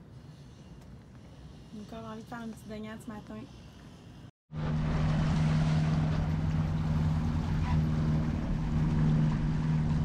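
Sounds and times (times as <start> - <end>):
wind: 0.0 - 10.0
boat engine humming: 0.1 - 10.0
rushing water: 4.5 - 10.0.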